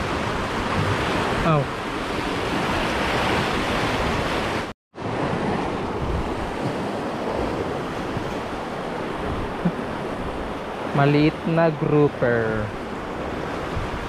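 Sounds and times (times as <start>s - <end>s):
wind buffeting microphone: 0.0s - 11.0s, 12.7s - 14.0s
sea surf breaking on rocks: 0.0s - 14.0s.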